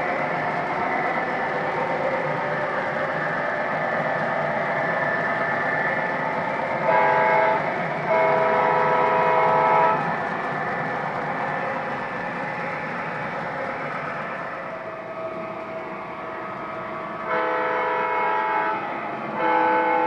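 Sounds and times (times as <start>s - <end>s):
model train rolling rumble: 0.0s - 20.0s
diesel horn blasts: 6.8s - 10.0s, 17.3s - 18.8s, 19.4s - 20.0s.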